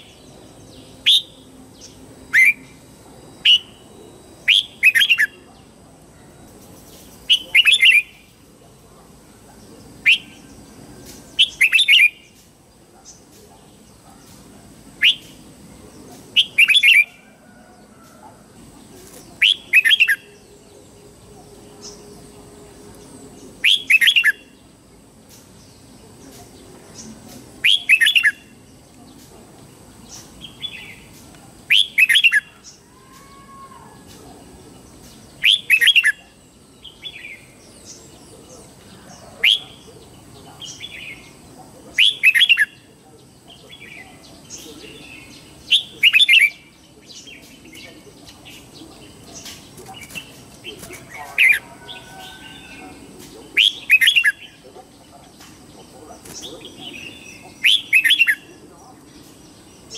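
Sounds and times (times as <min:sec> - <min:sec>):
bird whistled song: 0:01.0 - 0:01.4, 0:02.3 - 0:02.7, 0:03.4 - 0:03.8, 0:10.1 - 0:10.5, 0:15.0 - 0:15.4, 0:23.6 - 0:24.5, 0:27.6 - 0:28.5, 0:53.6 - 0:54.6
soft bird calls: 0:25.3 - 0:59.9.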